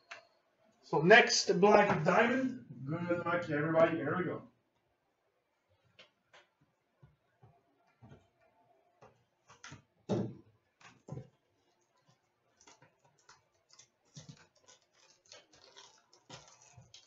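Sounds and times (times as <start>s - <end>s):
cardboard and wrapper crinkles: 10.8s - 17.0s.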